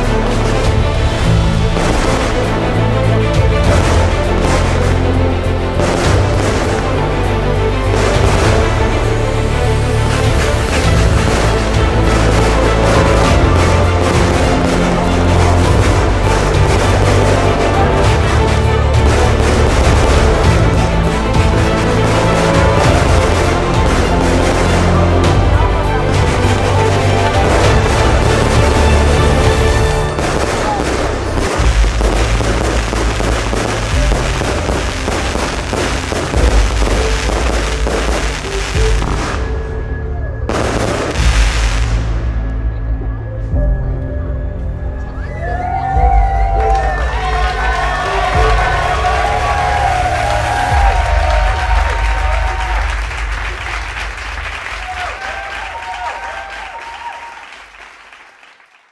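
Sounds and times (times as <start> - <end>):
fireworks bangs and crackling: 0.0 - 39.8, 40.5 - 42.3
background music with low bass: 0.0 - 56.1
crowd clapping: 10.1 - 38.9, 45.8 - 58.9
voices calling and cheering: 44.9 - 57.5.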